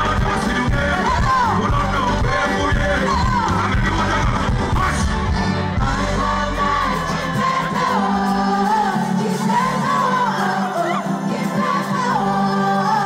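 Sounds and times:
deep bass: 0.0s - 7.1s
crowd shouting and singing: 0.0s - 13.0s
lead vocal singing: 0.0s - 13.0s
live band music: 0.0s - 13.0s.

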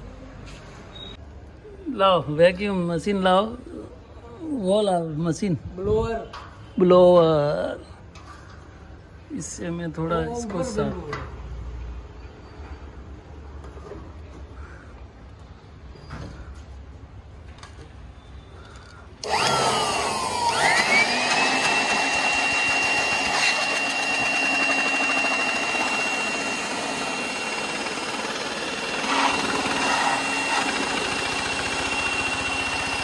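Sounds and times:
electric blower motor whine: 19.2s - 33.0s.

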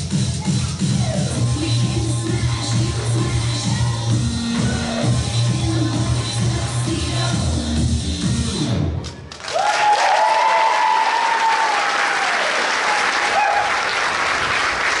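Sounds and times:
dance music: 0.0s - 9.0s
audience applause and cheering: 9.3s - 15.0s
long whoops: 9.5s - 13.8s.

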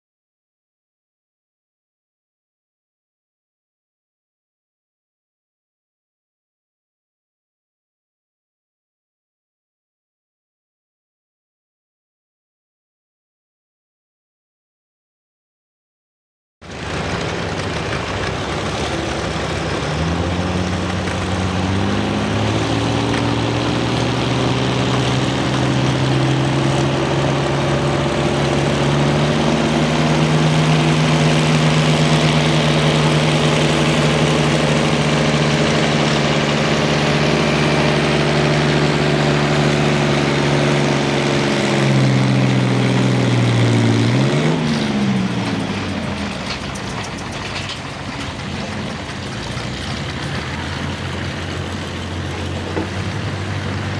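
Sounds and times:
tractor engine under load: 16.6s - 53.9s.

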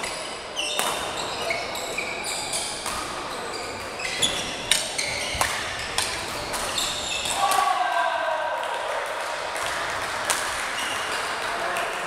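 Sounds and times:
court shoes squeaking on floor: 0.0s - 7.4s
rackets hitting shuttlecock: 0.7s - 1.2s, 2.7s - 7.6s.

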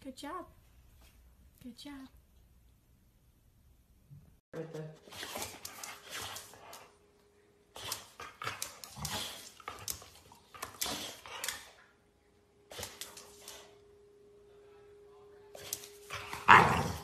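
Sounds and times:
dog growling and snapping: 7.8s - 11.7s, 16.3s - 17.0s.

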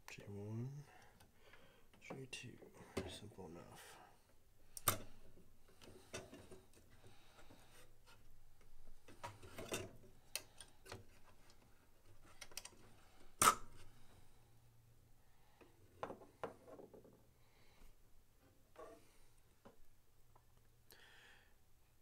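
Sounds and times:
small clicks from handling boards: 8.6s - 12.8s.

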